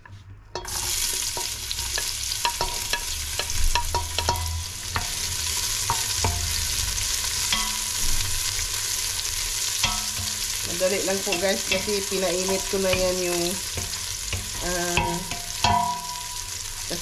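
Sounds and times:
wooden spoon knocking on metal pot: 0.6s - 5.2s, 5.8s - 6.6s, 7.5s - 8.3s, 9.8s - 10.4s, 11.0s - 16.5s
onion sizzling in oil: 0.6s - 17.0s.

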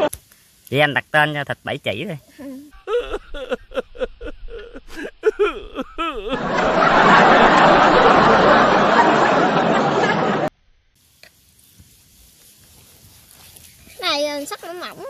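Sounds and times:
snickering laughter: 2.4s - 10.5s.

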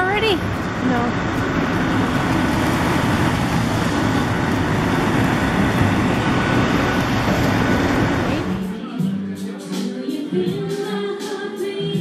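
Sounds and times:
city street traffic rumble: 0.0s - 8.7s.

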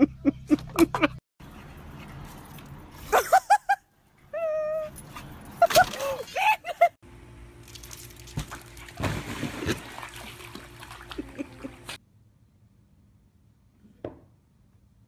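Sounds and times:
water splashing as dog swims: 8.6s - 12.0s.

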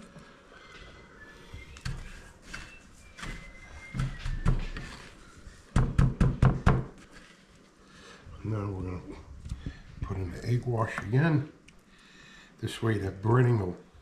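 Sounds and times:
hands patting cheese in breadcrumbs: 1.5s - 6.3s.

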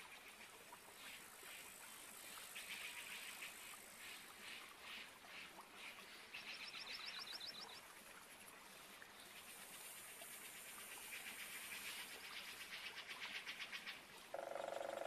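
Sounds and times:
insects and frogs calling: 9.3s - 15.0s.

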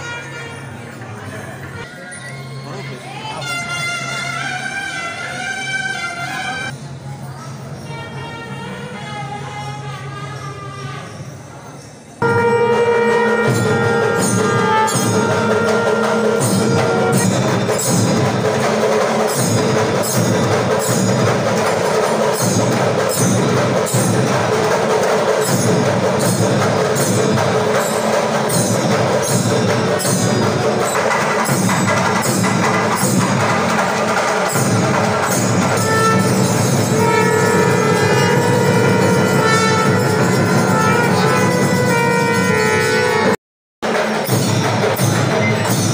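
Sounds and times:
bells ringing: 0.0s - 3.4s, 11.0s - 45.9s
rhythmic percussion: 11.1s - 45.9s
held horn-like tone: 12.2s - 18.4s, 34.5s - 43.4s.

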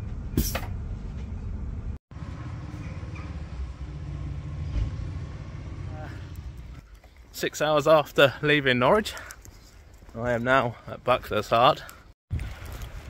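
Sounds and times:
low vehicle hum: 0.0s - 6.9s.

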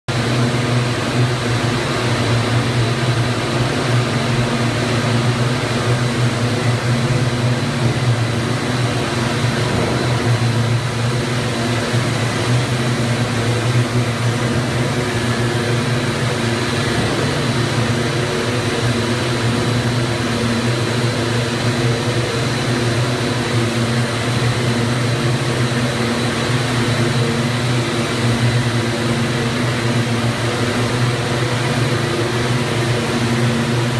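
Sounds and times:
high machine whine: 0.1s - 33.9s
twisting machines droning: 0.1s - 33.9s.

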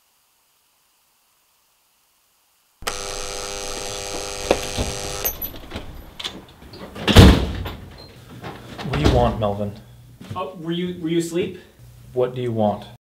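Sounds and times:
electric door buzzer: 2.8s - 6.4s
loud thump at door: 4.5s - 6.0s, 7.0s - 7.9s.

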